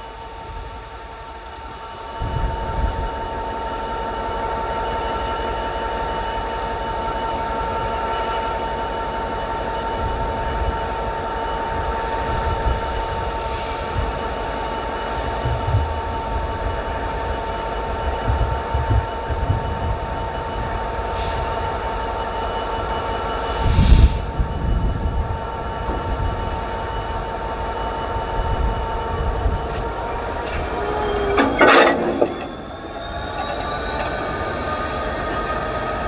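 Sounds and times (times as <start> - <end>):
freight train rumbling past: 0.0 - 36.0
constant high tone: 27.1 - 36.0.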